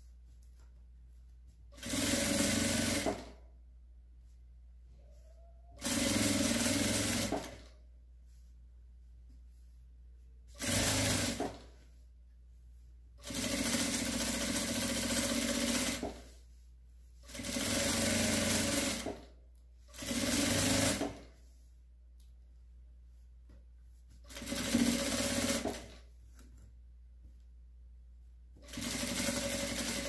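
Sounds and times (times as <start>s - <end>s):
sewing machine stitching: 1.7s - 3.4s, 5.8s - 7.8s, 10.5s - 11.8s, 13.2s - 16.4s, 17.2s - 19.3s, 19.9s - 21.3s, 24.3s - 26.0s, 28.6s - 30.0s.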